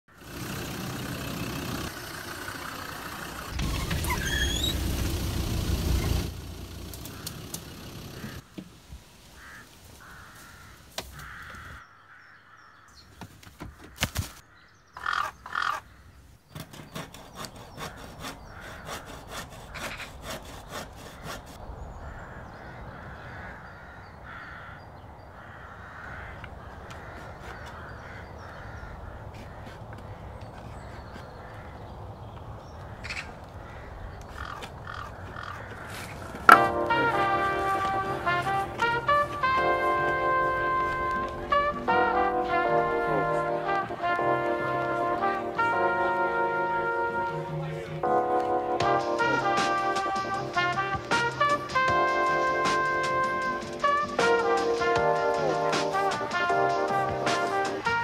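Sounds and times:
outdoor background noise: 0.1 - 58.0
crows cawing: 7.0 - 8.5, 9.3 - 16.3, 17.7 - 44.1.

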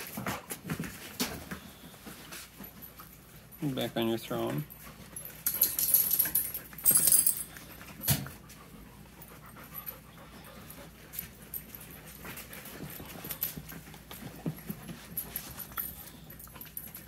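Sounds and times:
dog panting: 4.7 - 17.0
dogs rustling on fabric bed: 11.0 - 17.0.

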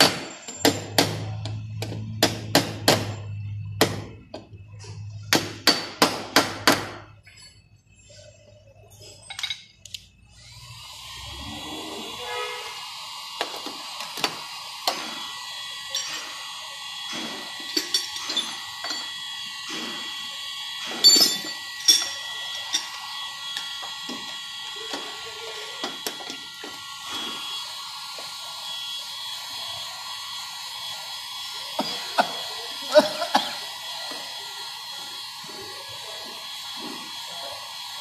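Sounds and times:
heat gun blowing with whine: 10.3 - 38.0.

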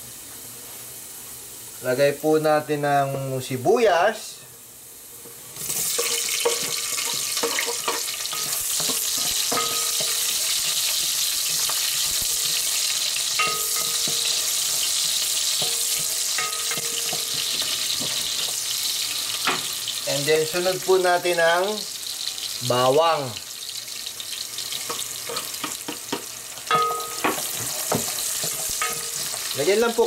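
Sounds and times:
onions sizzling in oil: 0.0 - 30.0
spatula scraping a pot: 5.6 - 18.7, 27.4 - 29.6.

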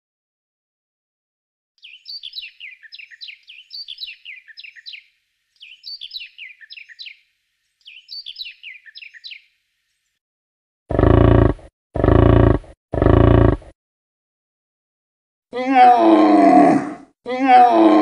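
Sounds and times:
bird chirping: 1.8 - 10.2.

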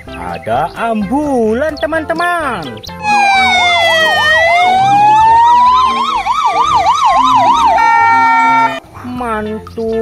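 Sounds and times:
siren wailing: 3.0 - 8.8
siren warbling rapidly: 3.0 - 8.8.

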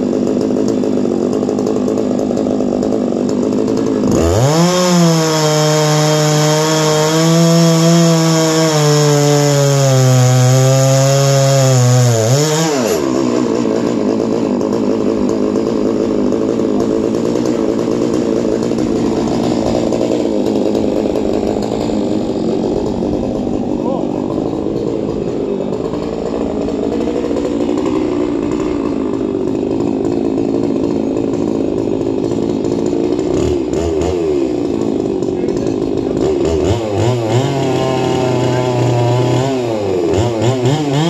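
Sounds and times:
chainsaw revving while cutting log: 0.0 - 41.0
chainsaw rough idle: 0.0 - 41.0.

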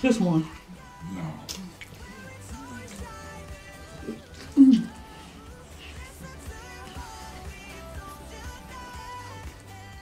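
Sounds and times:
pop music with bass: 0.0 - 10.0.

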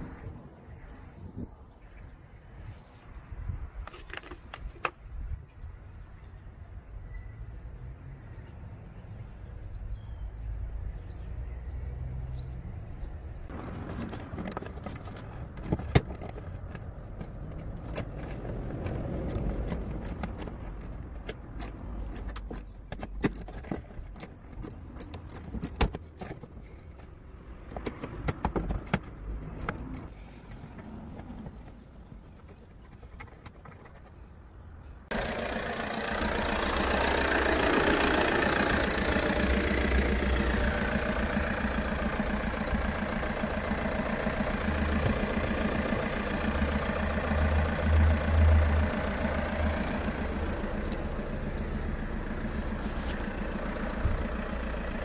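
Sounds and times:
socket wrench clicks and clinks: 17.8 - 26.0.

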